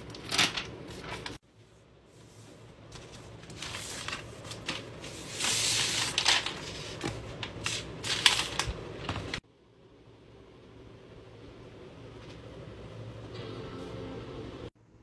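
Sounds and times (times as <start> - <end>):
cardboard and paper rustling: 0.0 - 1.4, 2.2 - 9.4.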